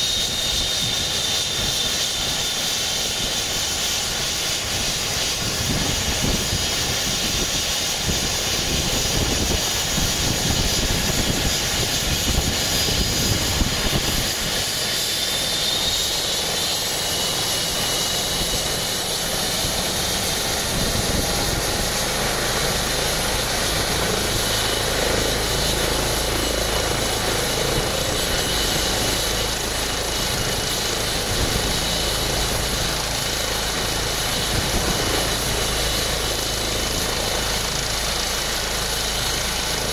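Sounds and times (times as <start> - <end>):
helicopter turbine whine: 0.0 - 39.9
rotor rumble: 17.7 - 39.9.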